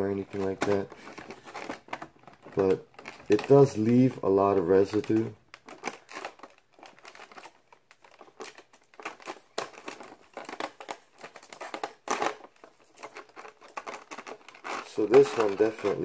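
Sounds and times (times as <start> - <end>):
plastic crinkling: 0.0 - 16.0.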